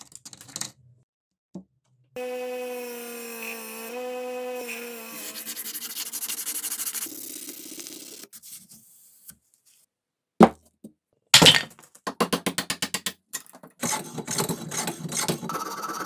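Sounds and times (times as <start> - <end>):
hammer head rubbing sandpaper: 5.0 - 7.1.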